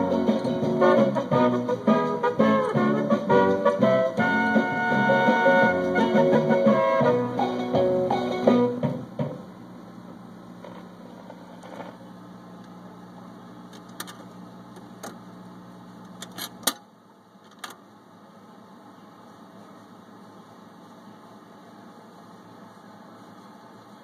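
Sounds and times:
record player music: 0:00.0 - 0:12.8
record player hum: 0:00.0 - 0:24.0.

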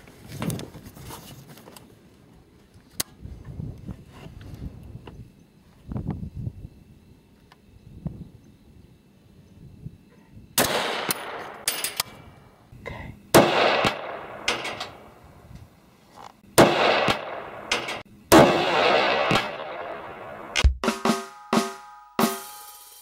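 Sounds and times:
rifle shots: 0:10.6 - 0:12.0, 0:13.3 - 0:15.0, 0:16.6 - 0:20.7.

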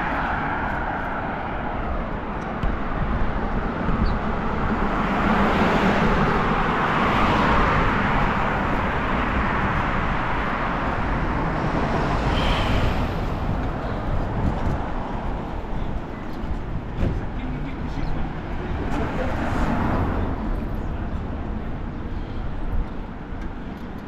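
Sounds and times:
wind on microphone: 0:00.0 - 0:17.2
road traffic passing: 0:00.0 - 0:24.0.

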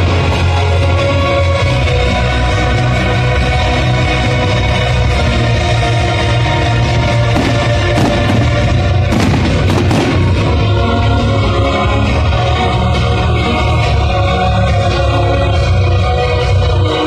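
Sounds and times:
loud music with heavy beat: 0:00.0 - 0:17.0
firework bursts banging: 0:07.4 - 0:10.6.

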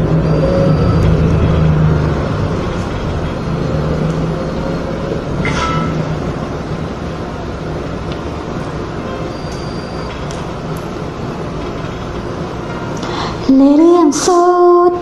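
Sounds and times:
loud low rumble: 0:00.0 - 0:09.3.

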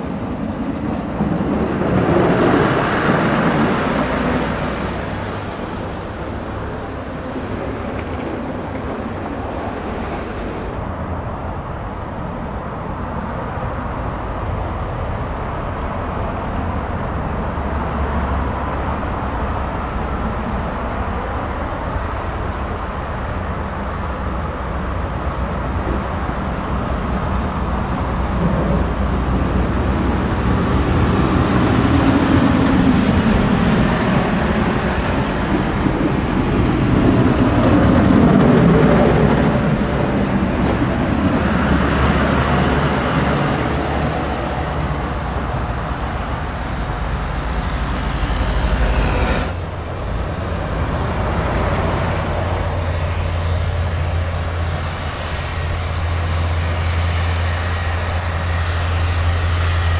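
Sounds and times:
diesel trucks driving past: 0:00.0 - 0:59.9
plow blades scraping snow: 0:00.1 - 0:10.9, 0:28.4 - 0:59.9.

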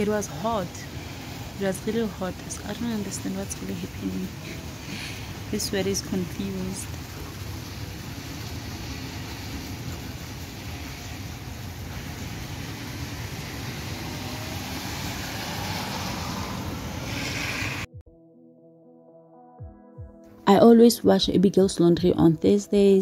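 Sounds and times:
car tyres hissing on wet road: 0:00.0 - 0:17.9
steady rain falling: 0:00.0 - 0:17.9.

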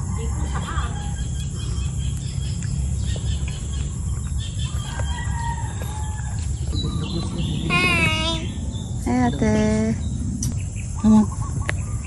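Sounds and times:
steady low rumble: 0:00.0 - 0:12.0
roosters crowing: 0:04.2 - 0:08.6.

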